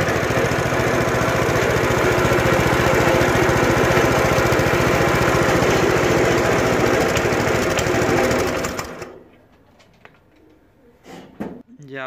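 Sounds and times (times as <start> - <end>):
small engine running: 0.0 - 9.2.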